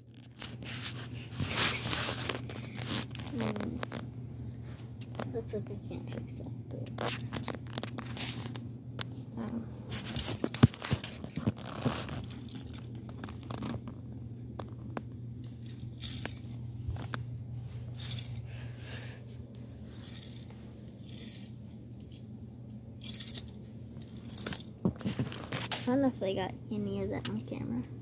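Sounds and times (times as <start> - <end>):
low hum: 0.0 - 28.0
toy car handling on carpet: 0.1 - 4.1, 6.7 - 9.1, 9.9 - 22.3, 23.0 - 26.0.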